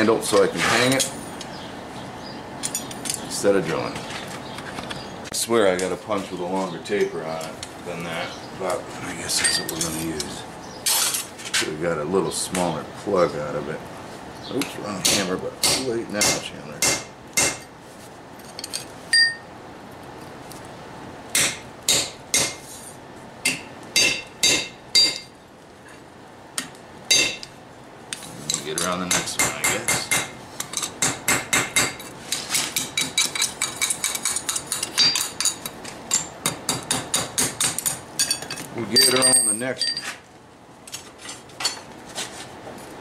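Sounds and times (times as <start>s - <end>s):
hammer striking punch on anvil: 15.0s - 17.6s, 21.4s - 22.6s, 23.4s - 25.2s, 27.1s - 27.4s.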